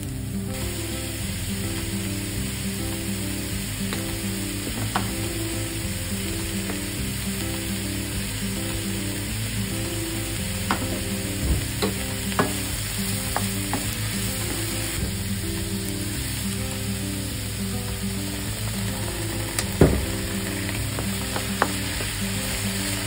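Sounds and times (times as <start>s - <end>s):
vegetables sizzling in a frying pan: 0.0s - 23.0s
spatula knocking against pan: 10.7s - 12.7s.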